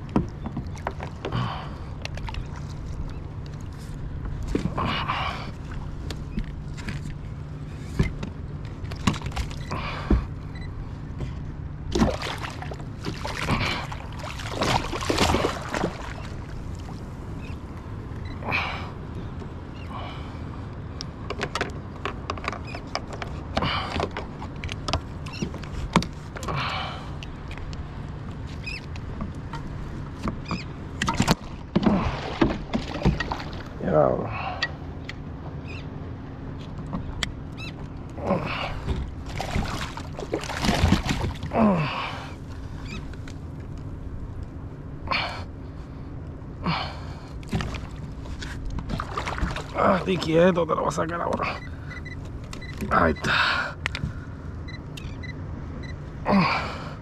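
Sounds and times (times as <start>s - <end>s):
steady low hum: 0.0s - 57.0s
knocks and clicks on kayak: 21.2s - 26.2s.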